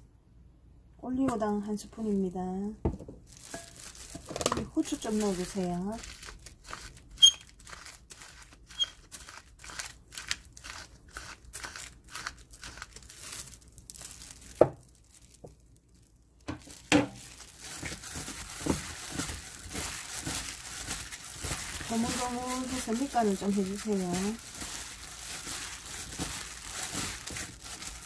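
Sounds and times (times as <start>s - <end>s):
plastic glove crinkling: 3.2s - 28.0s
pepper mill grinding: 3.4s - 13.2s, 17.2s - 28.0s.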